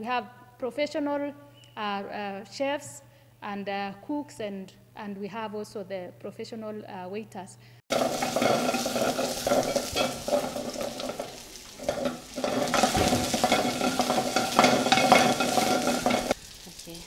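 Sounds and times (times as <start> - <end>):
utensil stirring and scraping: 7.9 - 16.4
food sizzling in a pan: 7.9 - 17.0.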